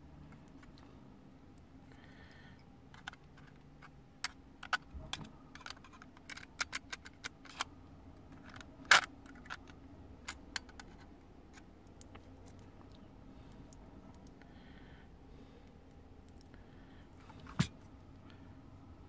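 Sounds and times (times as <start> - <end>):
hands clicking and tapping metal: 2.9 - 14.4.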